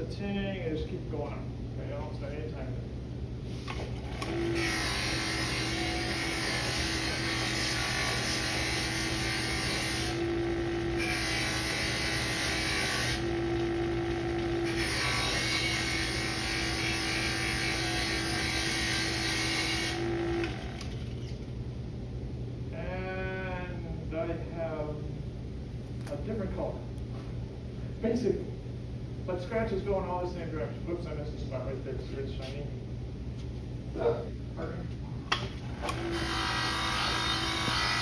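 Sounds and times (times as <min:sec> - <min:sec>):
electric motor hum: 0:03.5 - 0:21.6, 0:35.6 - 0:38.0
buffing wheel hissing on metal: 0:11.0 - 0:13.3.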